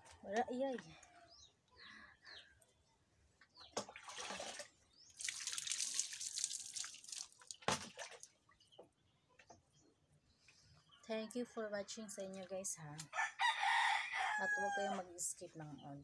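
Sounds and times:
water pouring and splashing: 3.8s - 8.5s.

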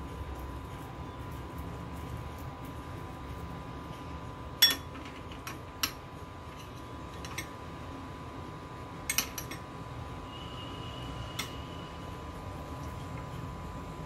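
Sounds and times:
low background hum: 0.0s - 14.0s
spoon clinking on glass bowl: 4.6s - 5.0s.

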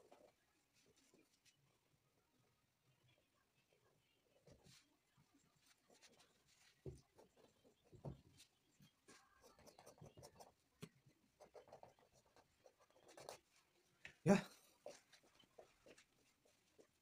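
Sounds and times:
paintbrush scratching on canvas: 4.4s - 14.0s, 14.7s - 17.0s.

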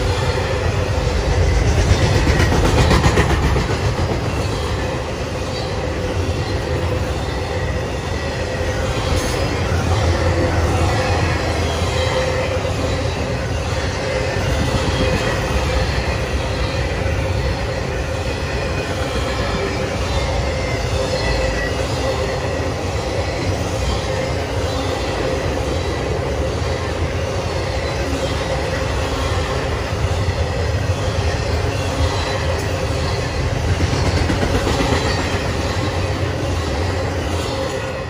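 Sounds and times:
freight train wheels rumbling on rail: 0.0s - 38.0s.

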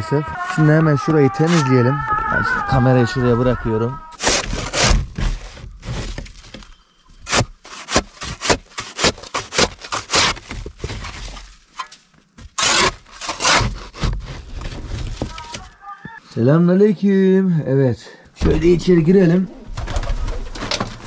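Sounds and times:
shovel scraping snow: 4.2s - 6.2s, 7.2s - 11.3s, 12.6s - 15.0s.

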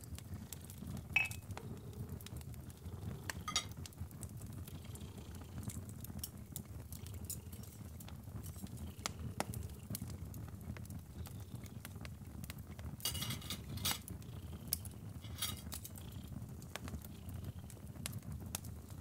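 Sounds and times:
crackling fire: 0.0s - 19.0s
crockery clinking: 1.2s - 1.4s, 3.5s - 3.7s, 13.1s - 14.0s, 15.2s - 15.9s.

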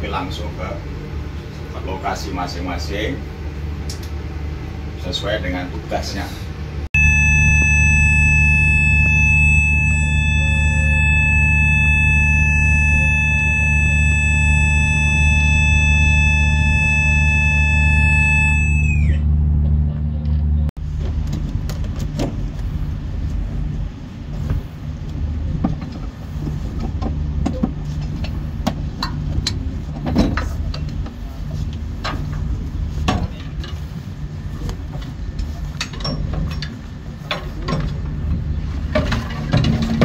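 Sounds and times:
low drone of ship machinery: 0.0s - 40.0s
fire alarm tone: 7.0s - 19.2s.

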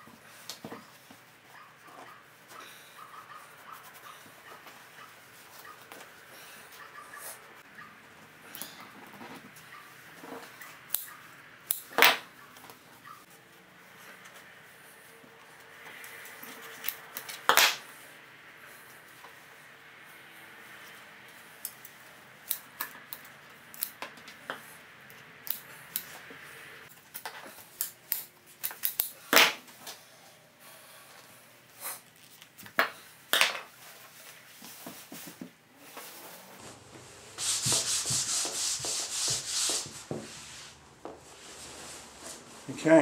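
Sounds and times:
fabric rubbing and scraping: 35.8s - 43.0s
sheet rustling: 35.8s - 43.0s.

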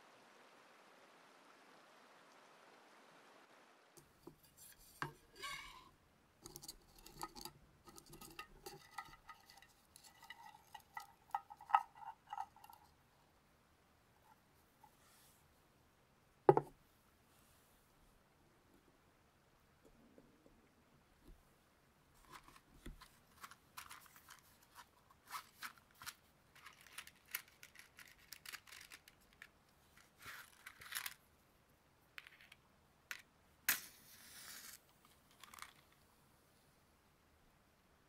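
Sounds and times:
close rustles and scrapes: 4.3s - 12.9s, 22.2s - 31.2s, 33.7s - 36.0s.

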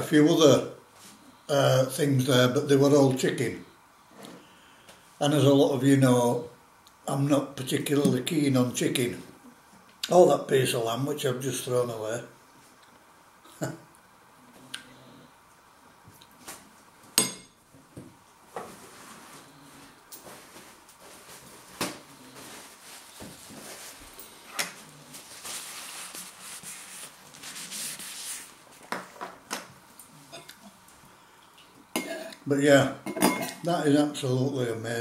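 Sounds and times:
paper towel rustling: 18.4s - 29.0s.

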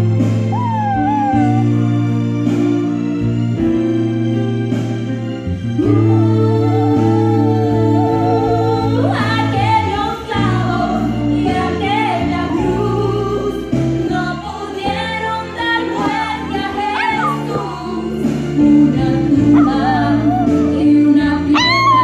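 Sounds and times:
held keyboard chords: 0.0s - 11.9s
person singing melody: 0.5s - 1.8s, 16.9s - 22.0s.

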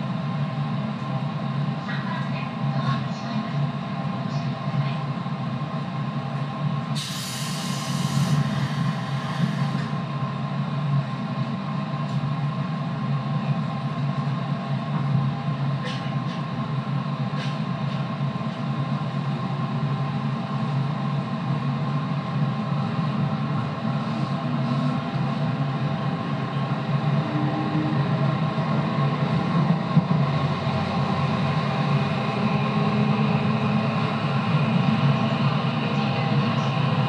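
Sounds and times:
electric train motor drone: 21.4s - 37.0s.

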